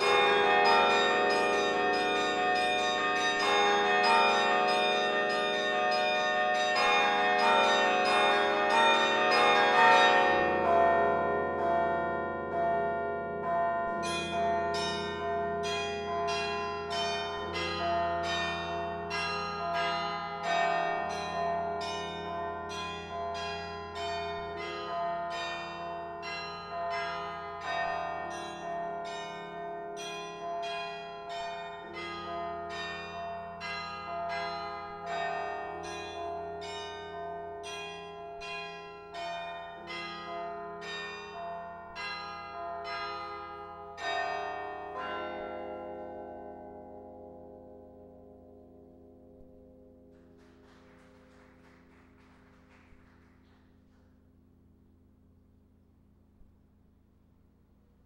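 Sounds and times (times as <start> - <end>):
carillon bells ringing: 0.0 - 45.9.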